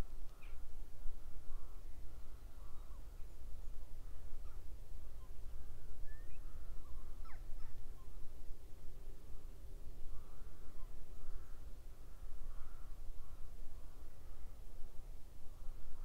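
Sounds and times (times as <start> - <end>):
distant crows cawing: 10.0 - 14.6.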